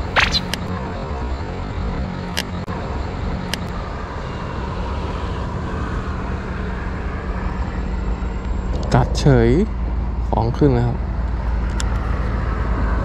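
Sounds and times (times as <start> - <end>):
sharp clicks: 0.0 - 0.7
low rumble and hiss: 7.9 - 11.3.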